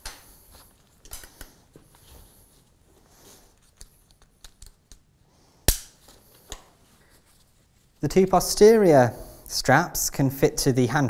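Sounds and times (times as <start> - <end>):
sharp loud clip snap: 5.6 - 6.0
strap rustle: 5.9 - 8.1.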